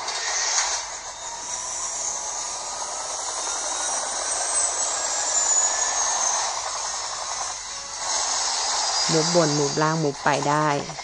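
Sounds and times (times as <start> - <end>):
faint high tone sliding down: 0.0 - 8.0.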